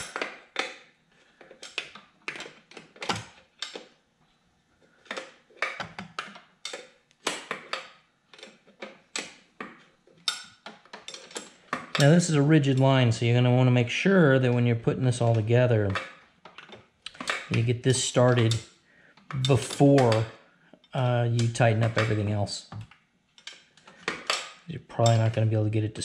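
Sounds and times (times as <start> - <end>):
wrenches clicking on metal fitting: 15.8 - 18.6.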